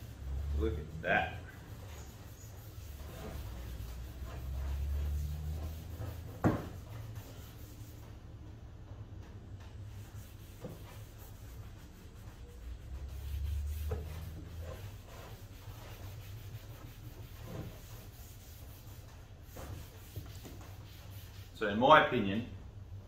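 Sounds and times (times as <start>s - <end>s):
rag rubbing wooden handle: 0.0s - 8.1s, 9.6s - 21.6s.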